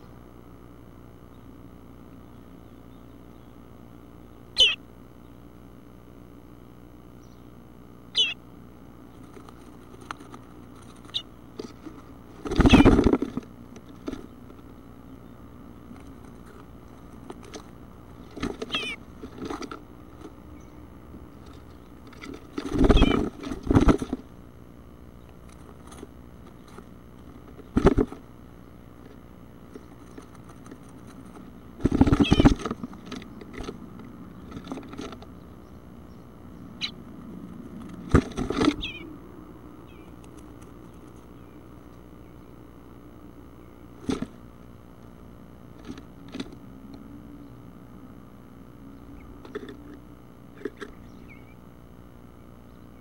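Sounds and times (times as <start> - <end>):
nestlings chirping: 4.2 - 4.9, 8.1 - 24.2, 25.1 - 37.1, 38.4 - 39.2, 39.8 - 42.8, 50.6 - 51.6
scratching and thumping in nest box: 9.1 - 15.0, 15.8 - 24.4, 25.4 - 35.3, 37.7 - 38.9, 43.9 - 44.5, 45.6 - 46.6.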